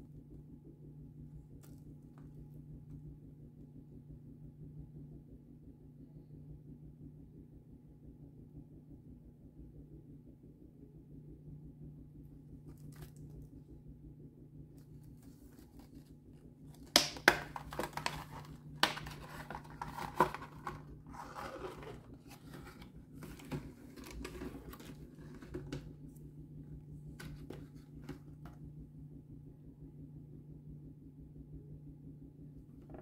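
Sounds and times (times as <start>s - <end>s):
plastic blister pack cracking: 16.7s - 22.6s.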